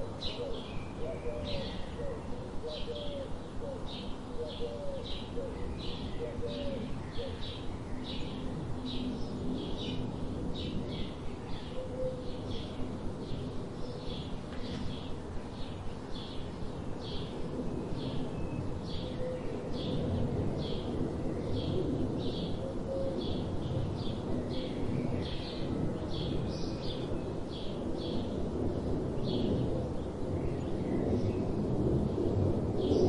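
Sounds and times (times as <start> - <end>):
sparrow chirping: 0.0 - 8.4.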